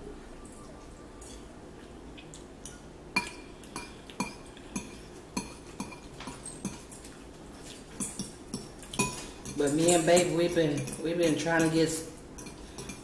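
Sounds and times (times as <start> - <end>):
metal fork clinking on bowl: 2.6 - 7.0, 8.0 - 13.0.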